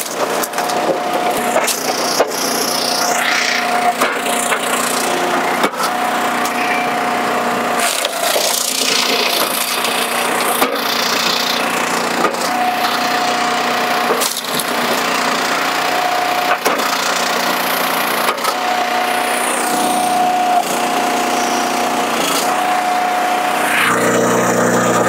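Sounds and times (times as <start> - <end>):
wood cracking and splintering: 0.0 - 2.4, 14.0 - 15.1
log splitter running: 0.0 - 25.0
machine whine: 0.0 - 25.0.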